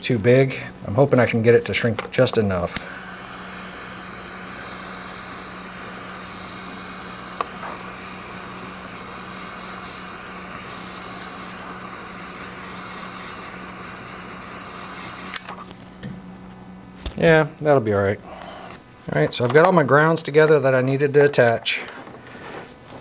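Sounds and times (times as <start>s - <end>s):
gas torch flame hissing: 2.2s - 16.0s.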